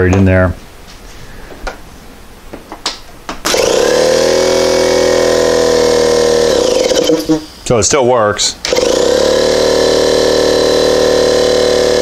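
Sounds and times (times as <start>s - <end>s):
air compressor running: 3.4s - 7.8s, 8.6s - 12.0s.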